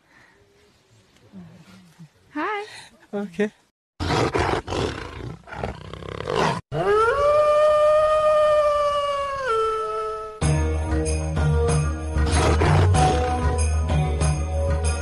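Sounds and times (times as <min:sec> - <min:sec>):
rough growling roar: 0:04.0 - 0:07.5.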